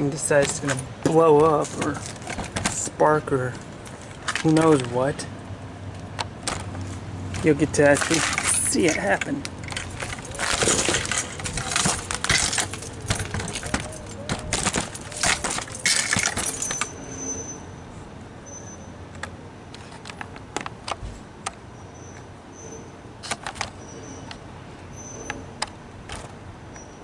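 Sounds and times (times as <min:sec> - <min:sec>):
metallic tripod rattling and clinking: 0:06.4 - 0:17.2.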